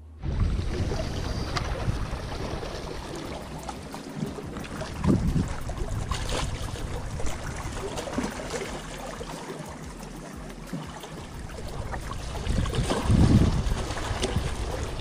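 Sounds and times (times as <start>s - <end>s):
wind gusting on microphone: 0.1s - 8.3s, 11.3s - 15.0s
water lapping against rocks: 0.2s - 15.0s.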